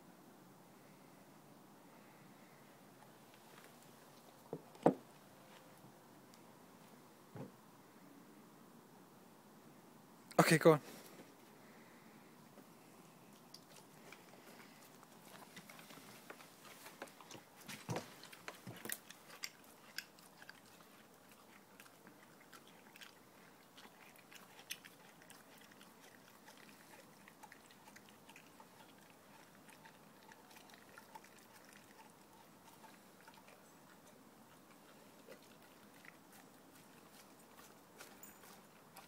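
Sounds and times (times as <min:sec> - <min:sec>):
dog chewing a bone: 0:13.3 - 0:39.0.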